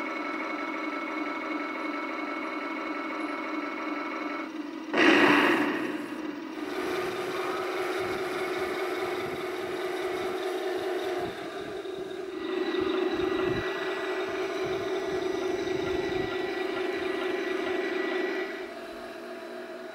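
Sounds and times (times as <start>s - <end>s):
toy tank motor drone: 0.0s - 19.9s.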